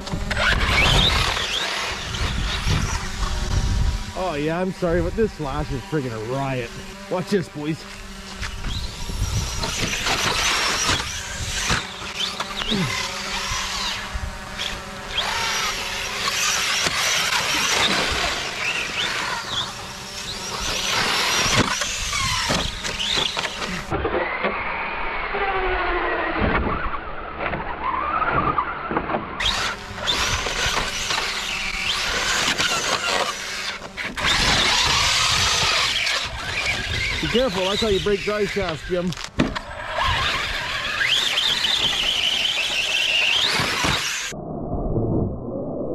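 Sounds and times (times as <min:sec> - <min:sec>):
drone humming: 0:00.0 - 0:24.0
electric motor whining: 0:00.0 - 0:44.4.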